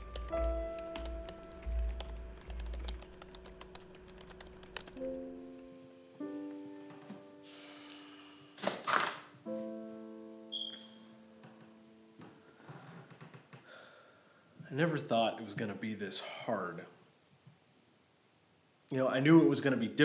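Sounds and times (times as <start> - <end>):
laptop keyboard typing: 0.0 - 5.4
slow background music: 0.0 - 8.7, 9.3 - 12.9
breathy rush of noise: 7.4 - 8.6.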